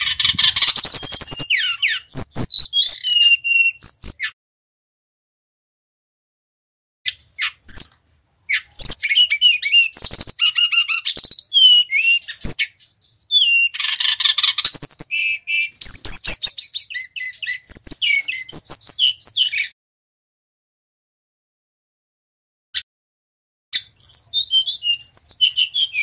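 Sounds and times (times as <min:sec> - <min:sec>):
bird singing whistles and trills: 0:00.0 - 0:04.4, 0:07.1 - 0:19.8, 0:23.7 - 0:26.0.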